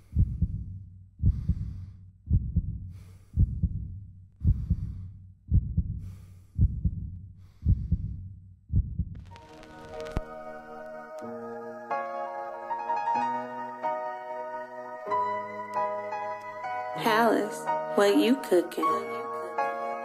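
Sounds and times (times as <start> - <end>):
heartbeat thumps: 0.0 - 9.4
sustained music chord: 9.7 - 20.0.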